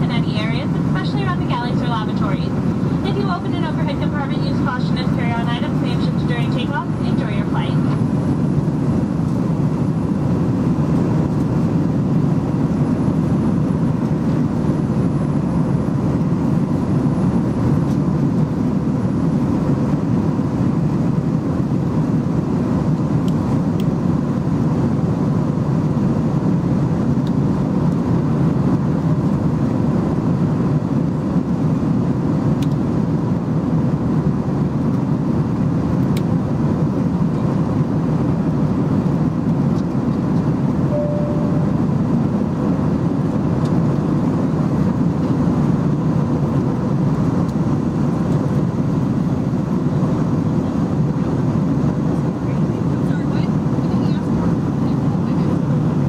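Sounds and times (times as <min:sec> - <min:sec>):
faint steady hums: 0:00.0 - 0:22.1, 0:36.9 - 0:45.4
airplane cabin drone: 0:00.0 - 0:56.0.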